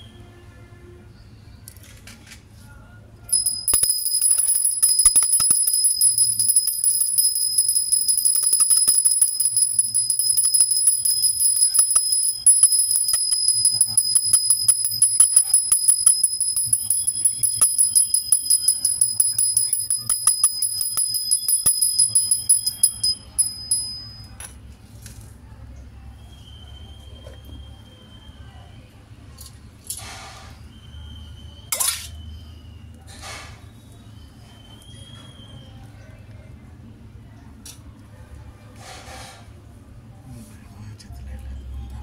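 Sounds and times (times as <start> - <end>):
brass hand bell ringing: 3.3 - 24.4.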